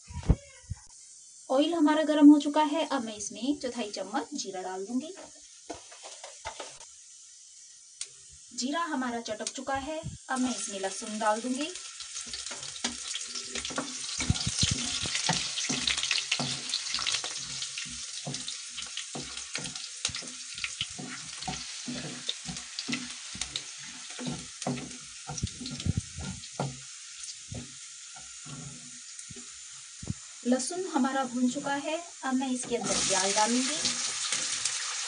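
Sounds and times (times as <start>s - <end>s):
garlic sizzling in hot oil: 0.9s - 35.0s
small crackles and knocks: 5.0s - 6.9s, 11.6s - 30.3s
wooden spatula stirring: 12.2s - 29.5s.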